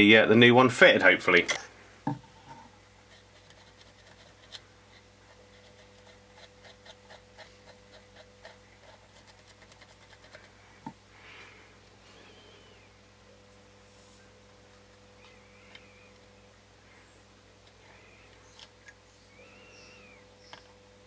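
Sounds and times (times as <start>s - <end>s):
cotton swab scrubbing circuit board: 3.0s - 10.6s.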